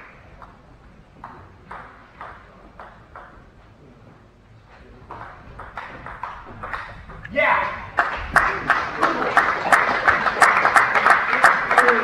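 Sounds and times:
table tennis ball bouncing: 1.2s - 3.5s, 5.1s - 12.0s.

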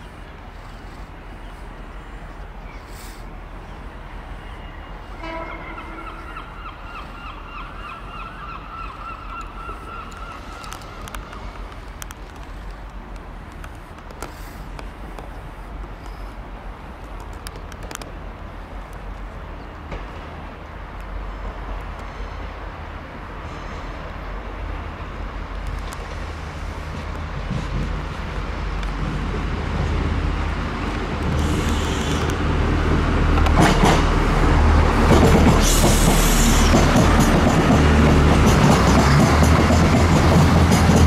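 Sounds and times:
train approaching: 0.0s - 41.0s
train clank: 25.7s - 30.0s, 33.3s - 34.2s, 35.0s - 41.0s
hiss: 31.2s - 32.6s, 35.5s - 36.9s.

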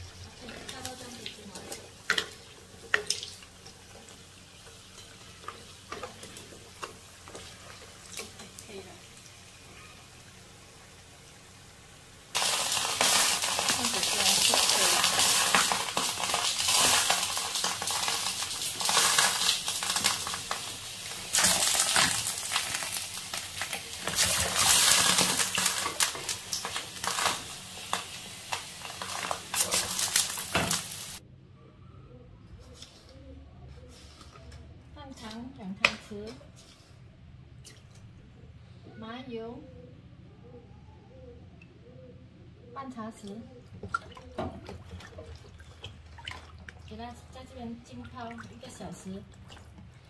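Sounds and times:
food crackling in hot oil: 0.0s - 31.2s.

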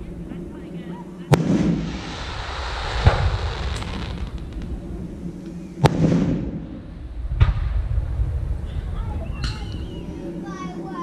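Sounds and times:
firework bangs with echo: 1.3s - 4.8s, 5.8s - 8.0s.

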